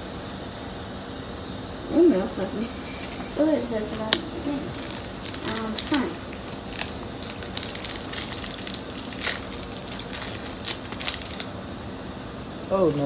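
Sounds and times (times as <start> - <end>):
cookie crunching: 3.8 - 11.6.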